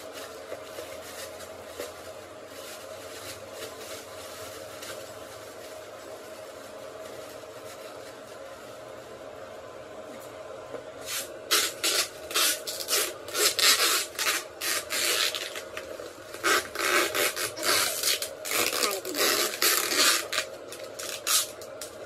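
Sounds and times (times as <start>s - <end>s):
plastic bag crinkling: 11.5s - 22.0s.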